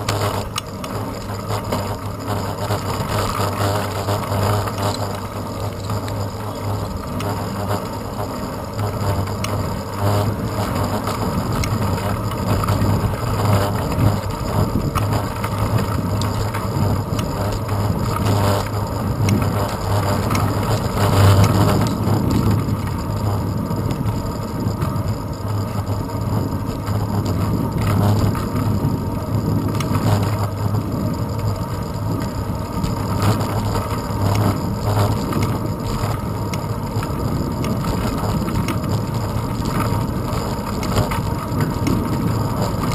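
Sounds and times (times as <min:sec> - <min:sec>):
wind and road rumble: 0:00.0 - 0:42.9.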